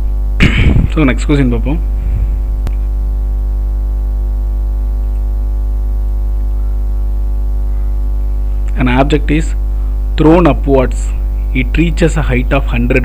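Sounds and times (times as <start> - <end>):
electrical mains hum: 0.0 - 13.0.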